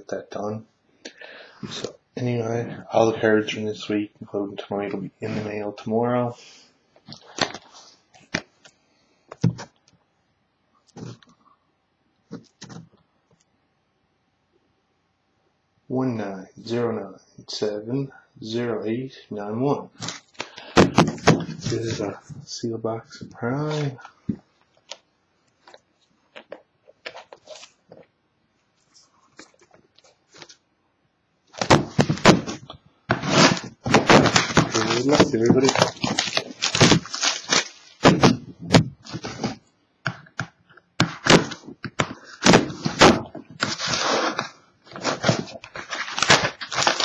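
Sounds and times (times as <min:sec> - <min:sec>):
box handling clicks and knocks: 0:20.7 - 0:21.6, 0:31.6 - 0:43.9
box set down with knock: 0:20.8 - 0:21.6
plastic wrap crinkling: 0:31.5 - 0:39.6, 0:41.2 - 0:47.0.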